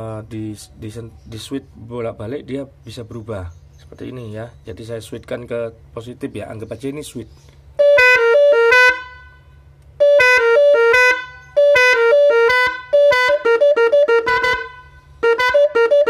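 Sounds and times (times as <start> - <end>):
musical car horn tune: 7.8 - 16.0.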